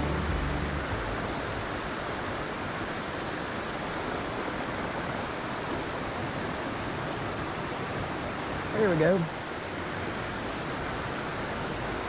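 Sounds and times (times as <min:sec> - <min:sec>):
background music: 0:00.0 - 0:02.0
creek rushing over rocks: 0:00.0 - 0:12.0.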